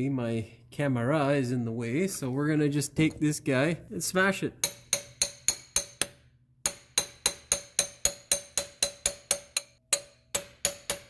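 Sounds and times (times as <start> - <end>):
hammer striking steel bar: 4.6 - 11.0.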